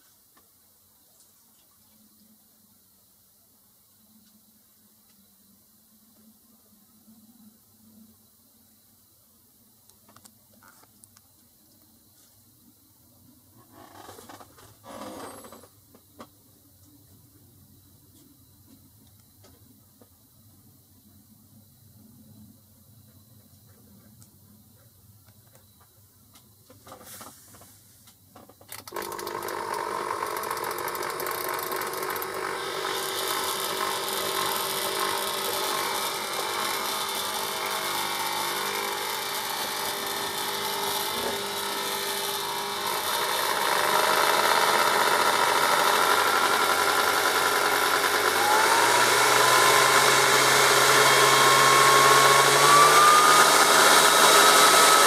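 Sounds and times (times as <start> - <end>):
blender motor running: 28.8 - 55.0.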